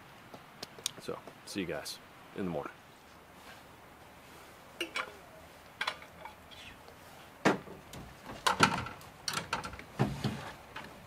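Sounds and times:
dishes and utensils clinking: 4.8s - 5.2s.

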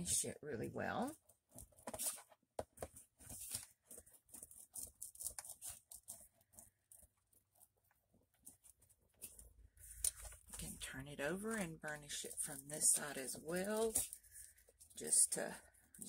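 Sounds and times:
burnishing tool rubbing paper: 3.2s - 16.0s.

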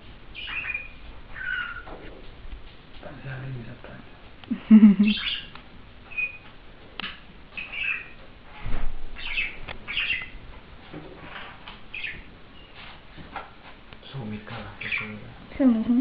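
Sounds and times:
budgerigar chirping and squawking: 0.3s - 1.9s, 5.0s - 5.5s, 6.1s - 6.5s, 7.5s - 8.2s, 9.2s - 10.4s, 11.9s - 12.3s, 14.8s - 15.2s.

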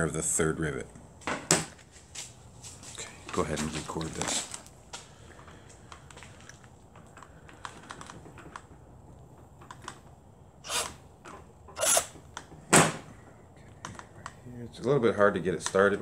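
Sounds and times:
cordless drill bursts: 10.6s - 11.0s, 11.8s - 12.2s.

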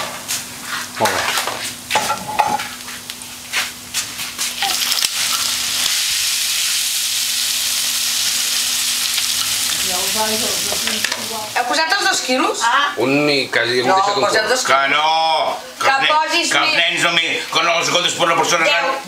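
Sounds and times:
food sizzling in a pan: 0.0s - 19.0s.

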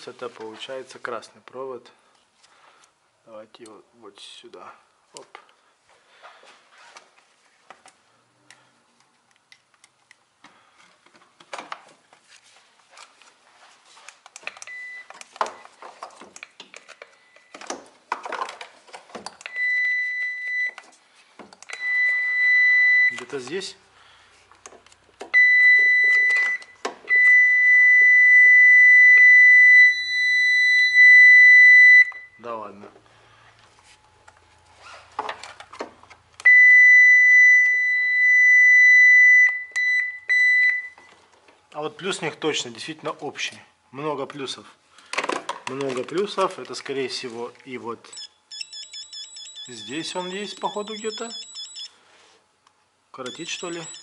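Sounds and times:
clicks and rustling of wires: 6.8s - 19.6s, 24.5s - 27.1s, 33.6s - 36.5s, 45.0s - 48.2s
circuit tester beeping: 48.1s - 52.0s, 53.2s - 54.0s.

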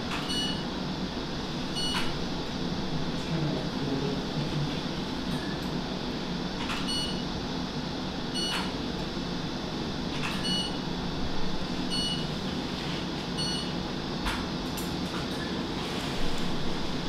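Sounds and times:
ventilation and machinery hum: 0.0s - 17.0s
medical equipment beeps: 0.2s - 0.6s, 1.8s - 2.1s, 6.7s - 7.2s, 8.3s - 8.7s, 10.2s - 10.8s, 11.9s - 12.3s, 13.4s - 13.7s.

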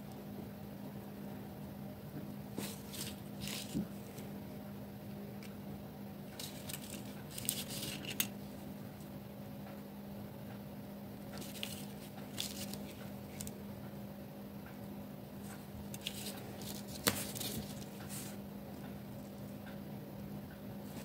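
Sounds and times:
plastic sticks clicking and rustling: 6.3s - 8.4s, 11.3s - 13.6s, 15.8s - 18.2s.

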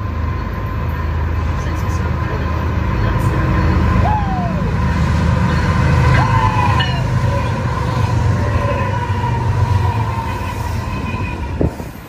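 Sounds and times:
diesel locomotives passing: 0.0s - 12.0s
steady high tone: 2.0s - 11.6s.

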